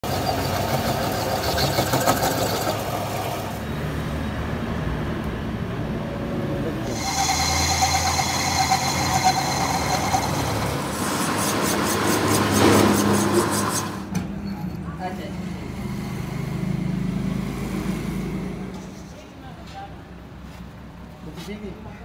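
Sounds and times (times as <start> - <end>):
thin tone from cutting tool: 6.9 - 10.8
metal lathe humming: 6.9 - 14.0.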